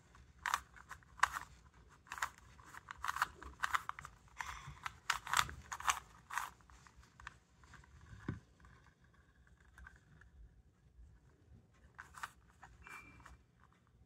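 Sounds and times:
puzzle cube clicking: 0.4 - 6.7.

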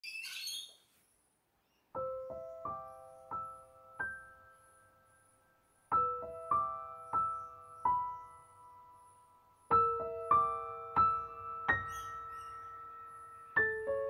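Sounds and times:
gentle piano melody: 1.7 - 14.0.

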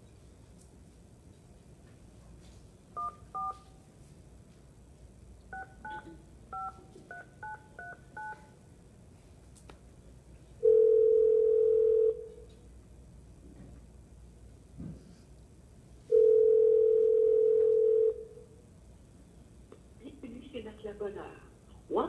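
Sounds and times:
touch-tone keypad beeps: 3.0 - 3.6, 5.5 - 8.5
loud steady ringing tone: 10.6 - 12.4, 16.1 - 18.4.

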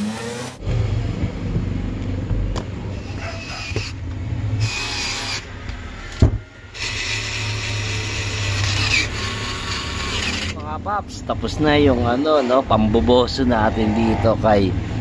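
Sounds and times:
parts and tools rubbing and scraping: 2.9 - 5.8, 6.8 - 11.2.

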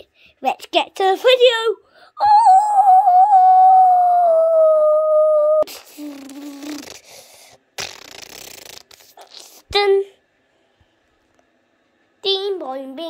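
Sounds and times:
child singing a long high note: 2.2 - 5.6.

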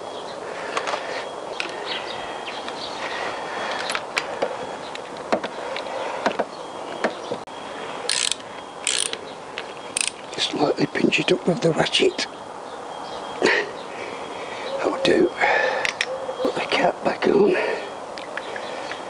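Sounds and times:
metallic clicks of socket: 8.1 - 9.2, 10.0 - 10.2, 15.8 - 16.1
ratchet clicking: 8.1 - 9.2, 10.0 - 10.2.

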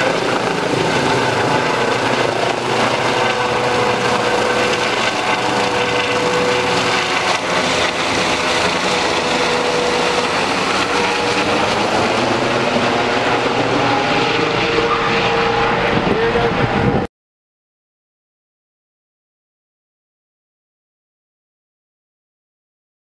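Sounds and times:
constant whine: 0.0 - 17.1
helicopter rotor and engine: 0.0 - 17.1.

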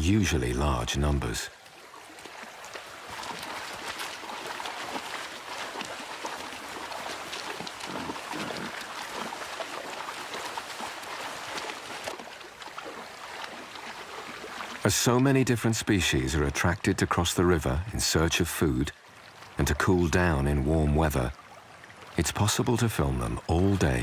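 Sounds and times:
running water rushing: 0.0 - 24.0
wild boar splashing through river: 1.6 - 14.9.

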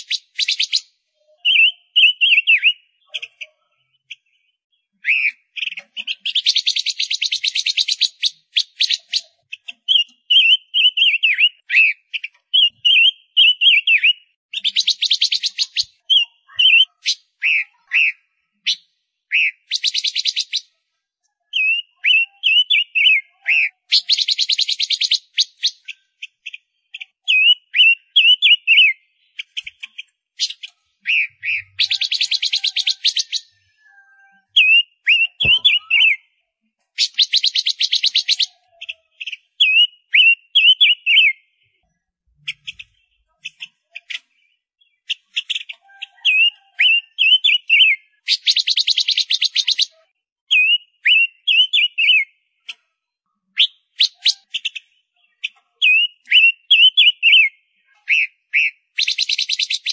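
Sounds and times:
bird slurred chirping: 0.0 - 20.8, 21.5 - 36.4, 37.0 - 41.8, 42.4 - 52.7, 53.5 - 59.9.

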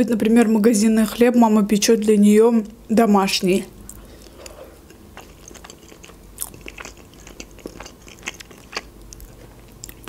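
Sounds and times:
close chewing: 3.9 - 10.0.

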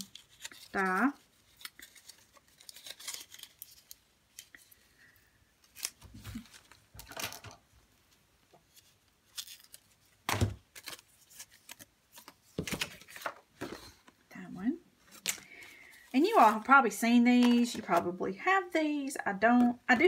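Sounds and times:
paper rustling: 0.0 - 4.9, 5.6 - 14.1, 15.0 - 16.8, 17.4 - 18.2.

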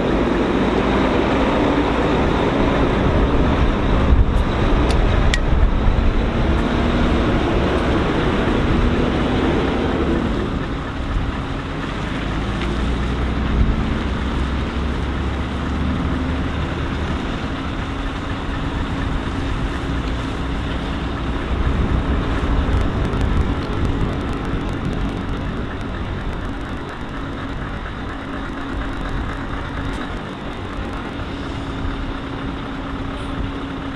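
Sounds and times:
heavy machinery rumble and hum: 0.0 - 33.9.

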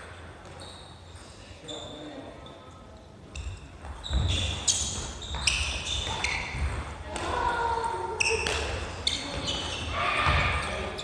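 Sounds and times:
shoes squeaking on wooden floor: 0.4 - 2.6, 3.4 - 7.1, 8.1 - 11.0
rackets hitting shuttlecock: 4.2 - 10.8.

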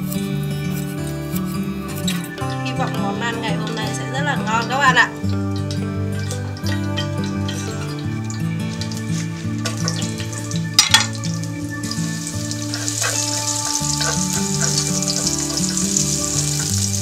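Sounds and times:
background music: 0.0 - 17.0
chopsticks stirring: 0.0 - 17.0
oil sizzling: 0.0 - 17.0.

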